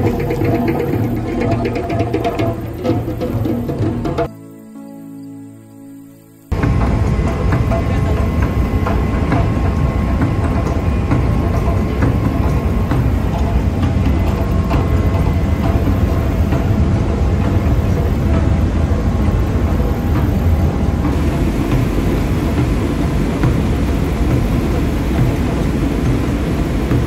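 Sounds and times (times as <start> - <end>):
ferry diesel engine rumble: 6.5 - 27.0.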